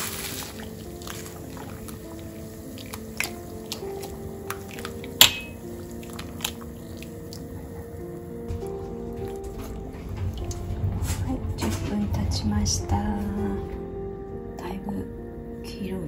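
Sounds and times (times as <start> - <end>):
cloth bag squishing and dripping: 0.0 - 10.8
ladle clinking against metal pot: 5.2 - 5.6.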